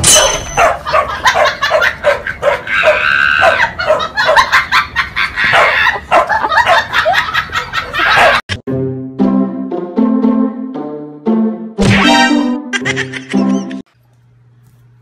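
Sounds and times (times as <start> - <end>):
dogs yipping: 0.0 - 7.2, 7.8 - 8.4.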